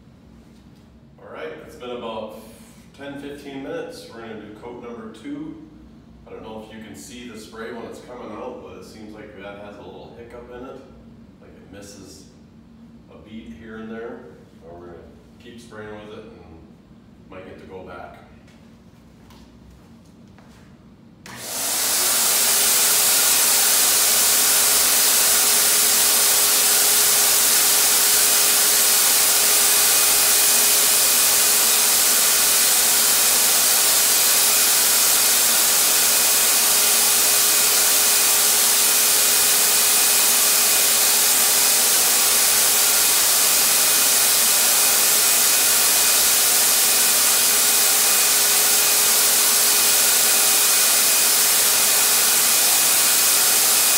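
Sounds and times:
paint sprayer turbine whine: 21.2s - 53.9s.

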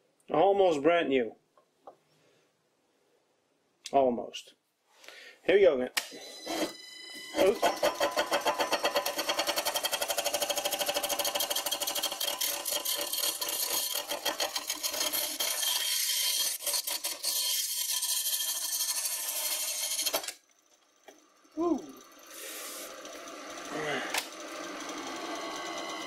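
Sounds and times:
lathe gouge clattering on wood: 7.4s - 15.8s.

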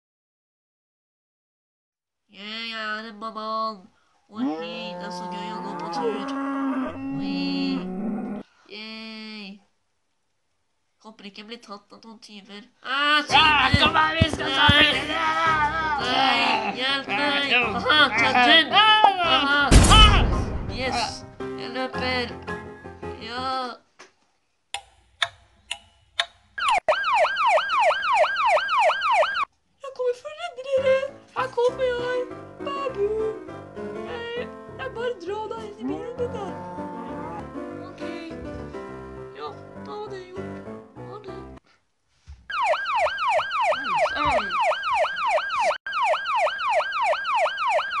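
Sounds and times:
music: 13.3s - 23.6s, 30.5s - 41.6s
ambulance siren wailing: 26.6s - 29.5s, 42.5s - 48.0s.

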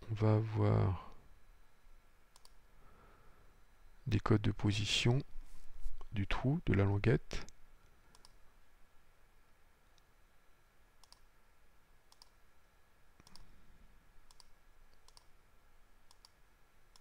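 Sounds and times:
faint computer mouse clicks: 2.3s - 2.6s, 8.1s - 8.4s, 11.0s - 11.3s, 12.1s - 12.4s, 13.2s - 13.5s, 14.2s - 15.3s, 16.1s - 17.0s.

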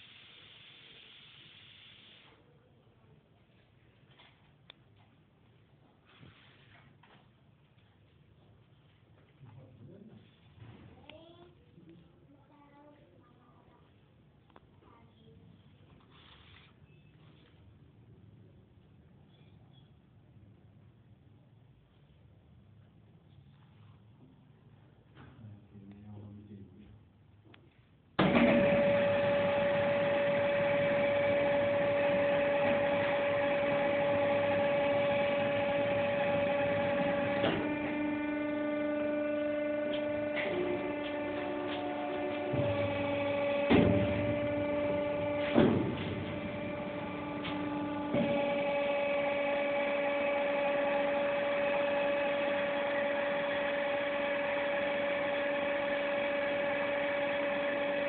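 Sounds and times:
machine electric hum: 28.2s - 58.0s.

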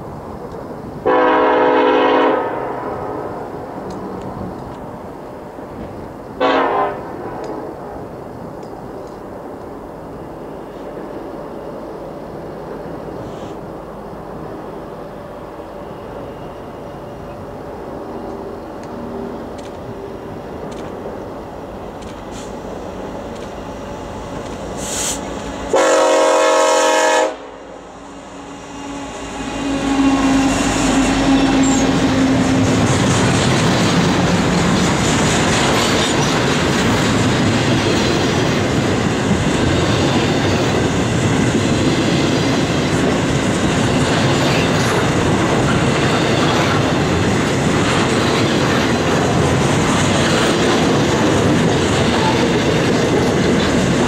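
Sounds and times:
train wheel-on-rail noise: 0.0s - 54.0s
locomotive air horn blast: 1.0s - 3.3s, 6.4s - 7.1s, 24.8s - 27.7s, 28.4s - 32.7s
wheels clacking over rail joints: 30.0s - 54.0s.

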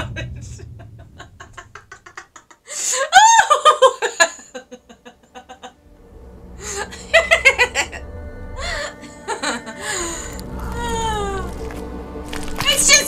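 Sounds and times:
low droning film music: 0.0s - 2.5s, 3.5s - 13.0s
woman giggling: 6.6s - 8.0s.

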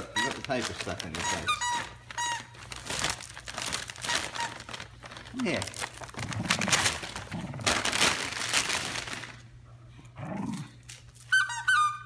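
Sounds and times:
wrapping paper crinkling and tearing: 0.0s - 9.6s.

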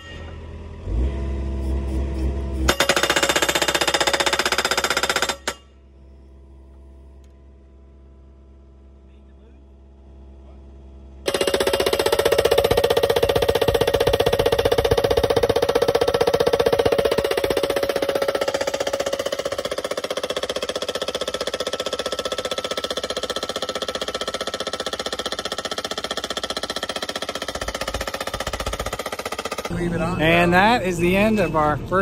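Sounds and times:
post driver hammering: 2.7s - 5.8s, 11.3s - 29.7s
steel post ringing: 2.7s - 5.8s, 11.3s - 24.4s.

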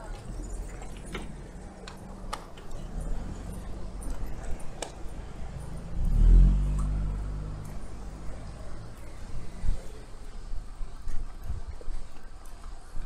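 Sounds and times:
road rumble: 0.0s - 13.0s
vehicle engine passing: 0.6s - 10.7s.

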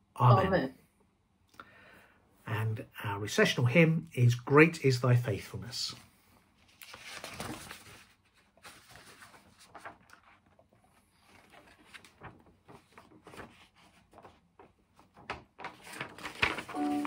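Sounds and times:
faint rustles and small clicks: 6.6s - 16.8s
paper being handled: 6.6s - 17.0s.

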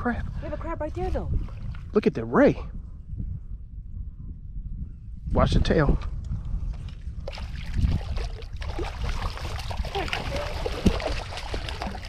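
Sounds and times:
fish thrashing and splashing in water: 7.3s - 12.0s.

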